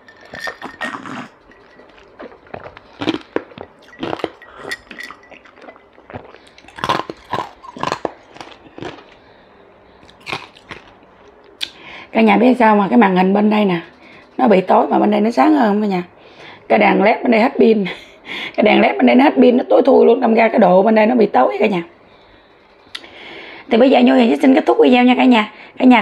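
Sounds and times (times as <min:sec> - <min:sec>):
glass mug clinks: 0:00.0 - 0:02.4, 0:03.6 - 0:06.3
person gulping water: 0:00.2 - 0:09.1.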